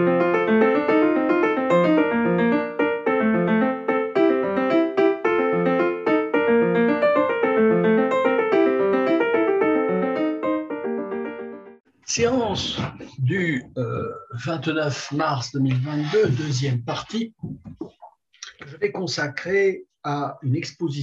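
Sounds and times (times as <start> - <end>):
piano music: 0.0 - 11.8.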